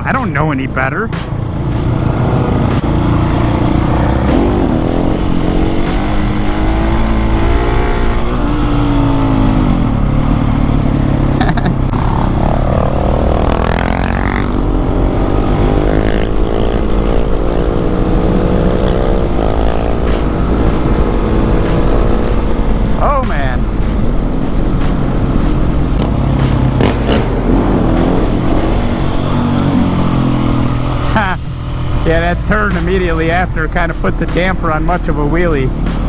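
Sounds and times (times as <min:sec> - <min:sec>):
low wind rumble: 0:00.0 - 0:36.0
motorcycle engine accelerating: 0:00.0 - 0:36.0.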